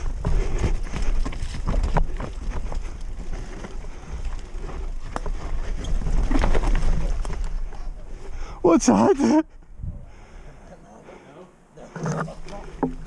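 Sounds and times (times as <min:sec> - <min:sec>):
tyres rumbling over rough trail: 0:00.0 - 0:10.5
wind buffeting microphone: 0:09.6 - 0:10.3.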